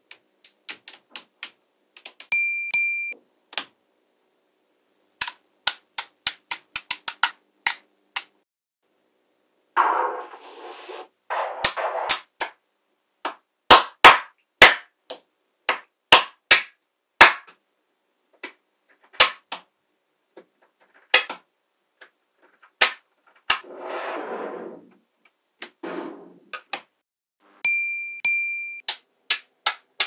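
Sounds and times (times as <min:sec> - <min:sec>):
magnetic balls clicking together: 0:00.1 - 0:02.3, 0:05.2 - 0:08.4.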